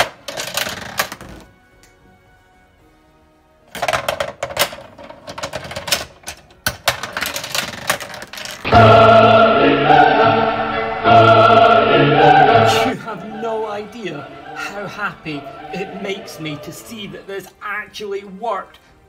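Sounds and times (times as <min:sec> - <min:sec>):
plastic clicks and rattles: 0:03.8 - 0:08.6
balls rolling: 0:03.8 - 0:08.7
loud choral music: 0:08.6 - 0:17.5.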